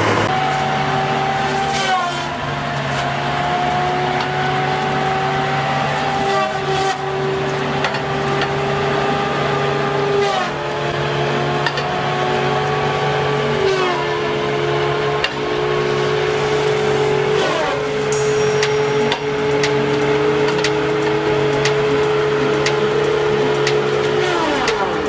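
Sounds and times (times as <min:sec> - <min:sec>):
diesel engine running: 0:00.0 - 0:01.2
disc saw whining: 0:15.6 - 0:25.0.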